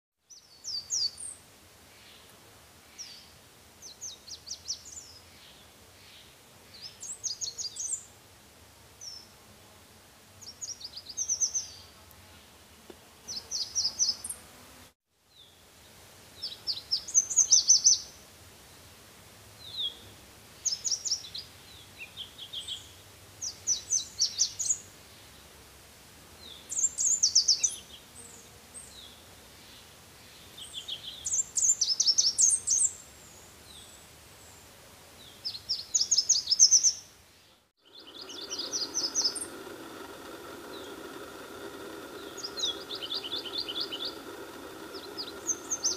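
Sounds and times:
bird singing high sharp notes: 0:37.8 - 0:39.6, 0:42.2 - 0:44.2, 0:44.8 - 0:45.9.

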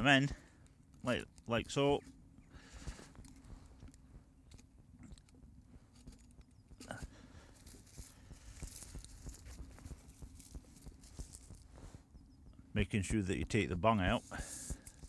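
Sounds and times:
dry reeds crackling and snapping: 0:07.6 - 0:11.6.

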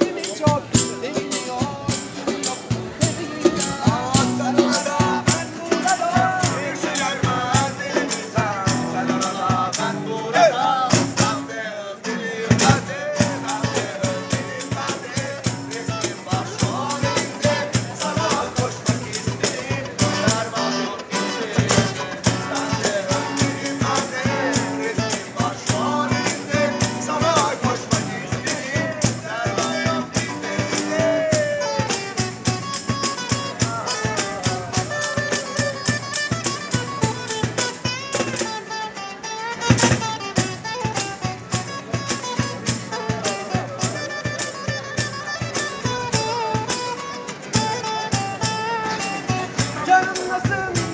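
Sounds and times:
acoustic guitars strummed: 0:00.0 - 0:50.9
cajon beat: 0:00.0 - 0:50.9
person singing: 0:00.9 - 0:36.0.

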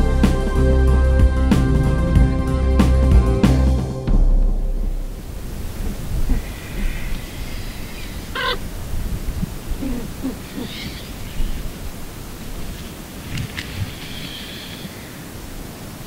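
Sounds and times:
wind-like hiss: 0:04.8 - 0:16.0
faint bird chirps: 0:06.3 - 0:08.6, 0:09.6 - 0:11.8, 0:13.7 - 0:15.3
sharp bird call: 0:06.3 - 0:08.6.

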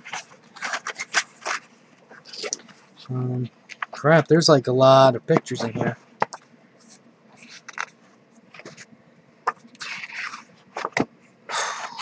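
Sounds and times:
paper pages rustling: 0:00.0 - 0:03.0, 0:06.8 - 0:08.9, 0:09.5 - 0:11.1.

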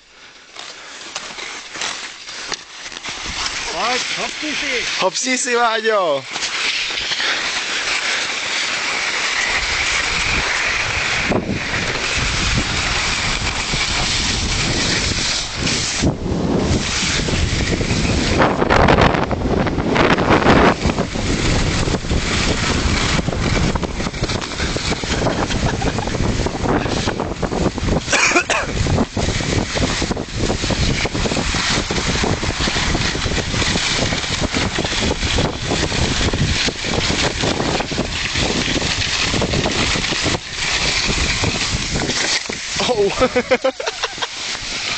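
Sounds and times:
skis sliding over snow: 0:00.0 - 0:44.9
wind buffeting microphone: 0:09.4 - 0:44.9.

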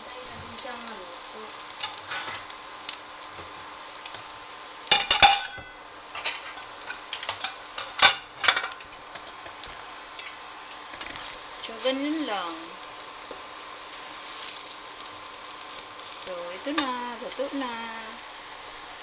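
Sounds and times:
omelette sizzling in a pan: 0:00.0 - 0:19.0
utensil clattering against pan: 0:04.9 - 0:08.8.

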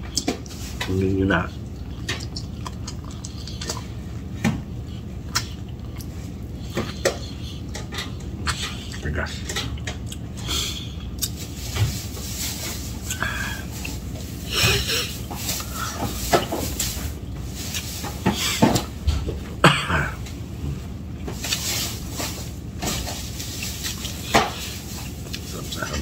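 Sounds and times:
chewing: 0:00.0 - 0:10.4, 0:11.1 - 0:11.5, 0:23.1 - 0:26.0.

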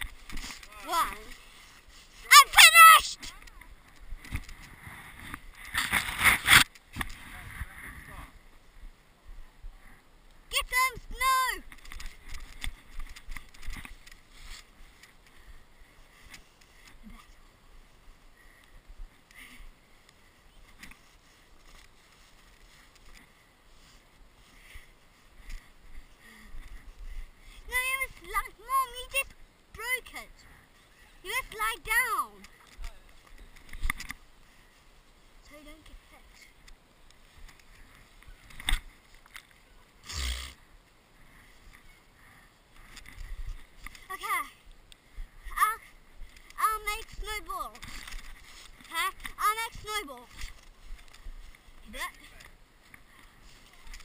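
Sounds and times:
camera scuffing in snow: 0:00.0 - 0:02.8, 0:12.8 - 0:15.1, 0:20.9 - 0:25.8, 0:47.4 - 0:54.0
faint low wind rumble: 0:03.4 - 0:31.3.

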